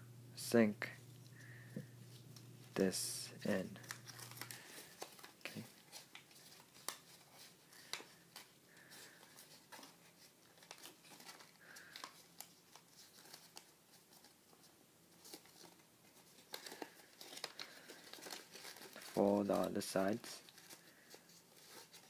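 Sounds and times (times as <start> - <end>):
paper being folded and creased: 3.8 - 19.7, 20.4 - 22.0.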